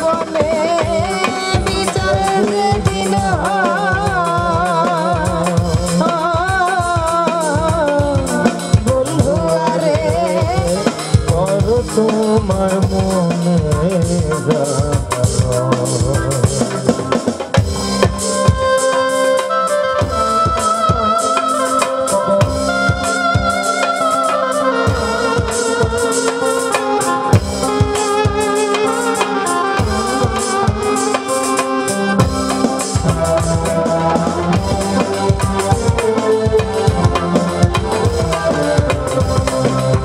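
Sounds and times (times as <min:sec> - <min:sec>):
woman singing folk song: 0:00.0 - 0:11.4
hand drum beat: 0:00.0 - 0:40.0
instrumental melody in held notes: 0:00.0 - 0:40.0
keyboard: 0:00.0 - 0:40.0.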